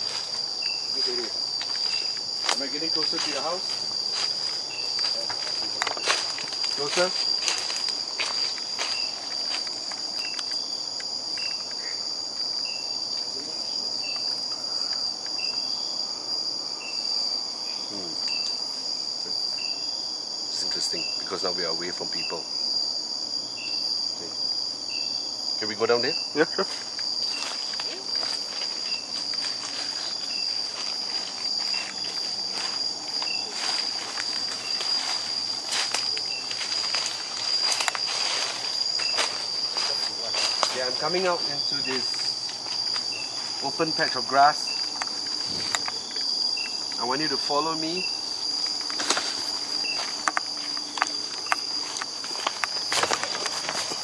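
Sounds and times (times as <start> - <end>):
footsteps: 0.0 - 10.6, 26.6 - 47.0, 48.4 - 54.0
leaves and branches brushing: 0.0 - 11.3, 26.6 - 54.0
insect high-pitched trill: 0.0 - 54.0
short insect chirp: 0.0 - 54.0.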